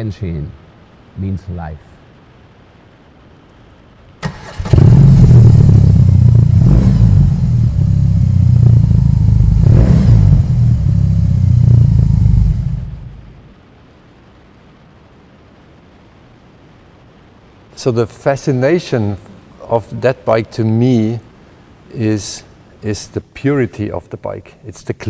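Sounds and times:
motorcycle engine deep exhaust note: 4.7 - 13.5.

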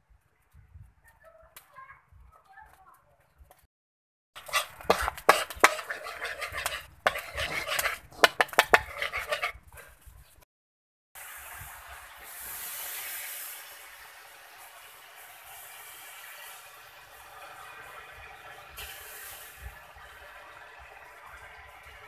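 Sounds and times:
caramel sizzling: 4.4 - 9.9, 11.2 - 21.9
water hissing in hot caramel: 4.4 - 9.9, 11.2 - 22.0
metal spoon scraping a wok: 4.4 - 10.0.

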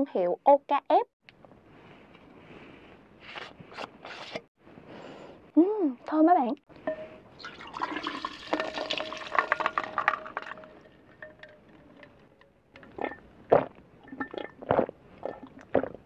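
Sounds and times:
ice cubes clinking: 6.9 - 13.2
liquid pouring into a glass: 6.9 - 13.2, 14.0 - 15.6
person gulping: 7.4 - 12.1, 12.8 - 16.0.

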